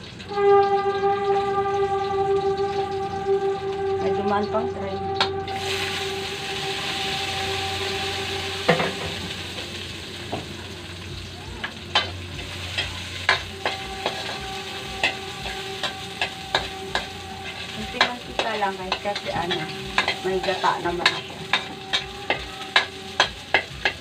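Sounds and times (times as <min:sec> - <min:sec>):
aromatics sizzling in hot oil: 0:00.0 - 0:24.0
metal spatula clinking on wok: 0:11.9 - 0:24.0.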